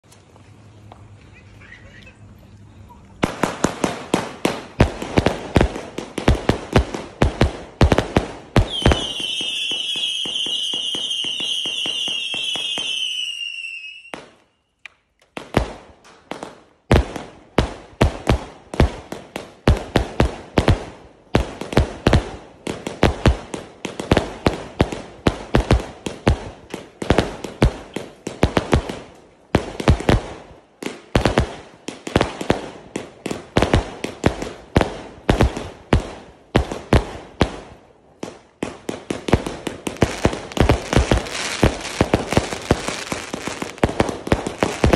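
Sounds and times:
fireworks popping: 3.0s - 13.3s, 15.2s - 44.9s
fireworks bangs: 3.2s - 14.4s, 15.3s - 44.9s
firework whistling shriek: 8.7s - 14.4s
firework cake bangs: 38.6s - 44.9s.

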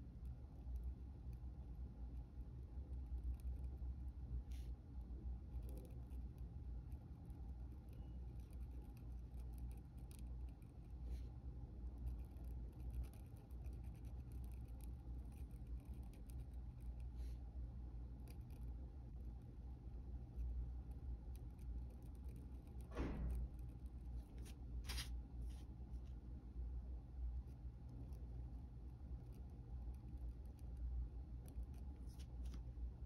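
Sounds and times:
steady low hum: 0.0s - 33.0s
pen nib scratching on paper: 0.6s - 3.8s, 5.4s - 11.2s, 12.0s - 17.4s, 18.2s - 18.8s, 20.2s - 25.1s, 27.5s - 32.5s.

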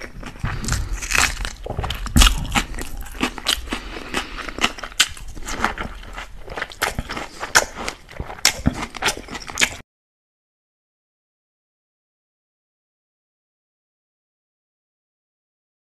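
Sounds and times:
chewing crisp bell pepper: 0.0s - 9.8s.

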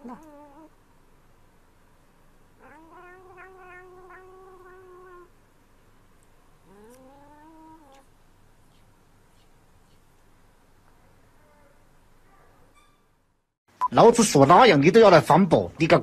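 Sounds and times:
cat yowling: 2.6s - 5.3s.

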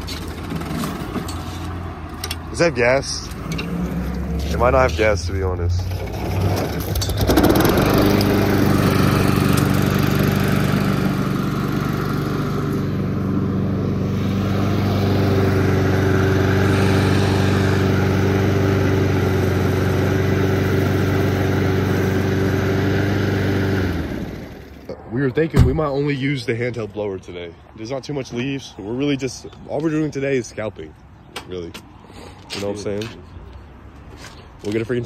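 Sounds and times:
lawn mower engine running: 0.0s - 24.9s.

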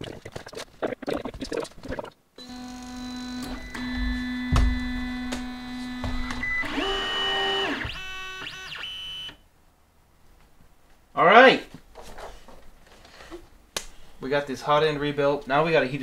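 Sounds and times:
printer stepper motors whining: 2.4s - 9.4s
low thud: 4.0s - 5.2s.

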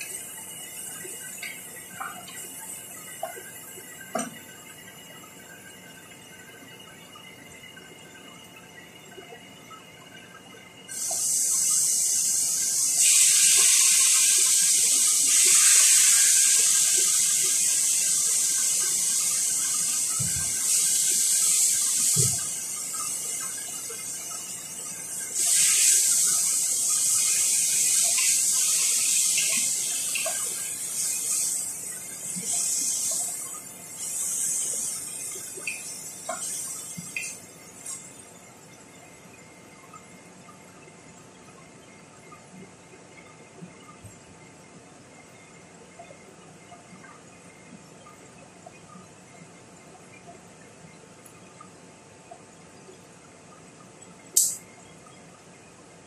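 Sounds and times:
food sizzling in hot oil: 10.9s - 38.0s, 54.4s - 54.6s.

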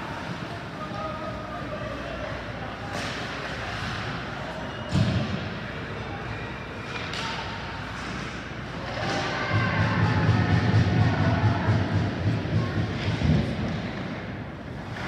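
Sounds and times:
ice rink background noise: 0.0s - 15.0s
low rumble of voices: 0.0s - 15.0s.

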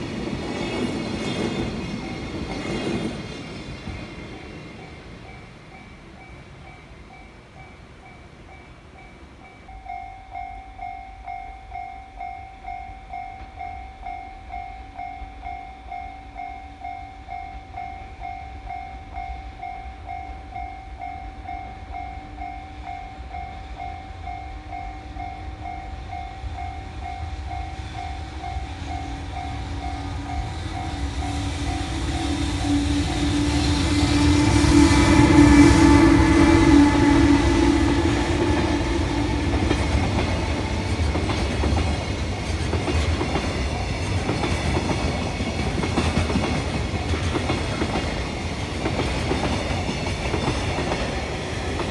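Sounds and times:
freight train rumble: 0.0s - 51.9s
level-crossing warning bell: 0.0s - 51.9s.

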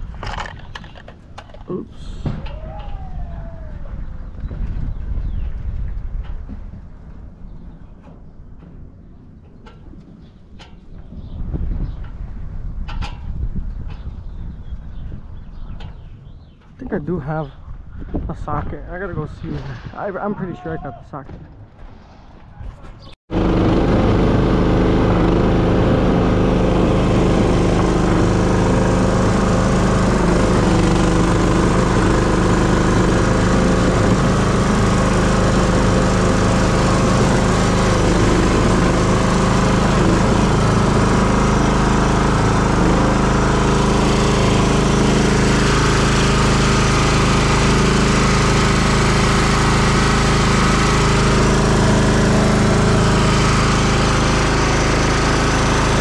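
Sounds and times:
small engine running: 23.3s - 56.0s.

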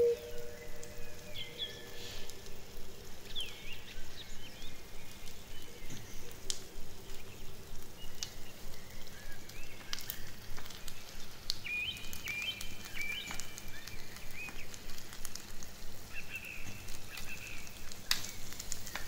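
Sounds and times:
birds chirping: 0.0s - 2.0s
wood fire crackling: 0.0s - 19.0s.

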